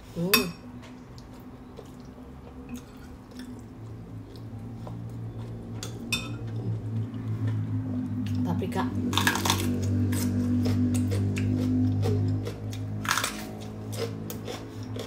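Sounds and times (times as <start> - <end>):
steady low hum: 0.0 - 15.0
metal spoon clinking on plate: 5.8 - 6.4.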